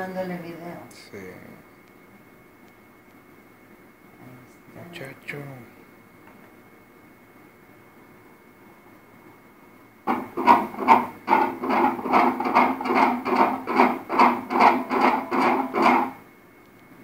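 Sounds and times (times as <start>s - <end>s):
fetal heartbeat on doppler speaker: 10.1s - 16.2s.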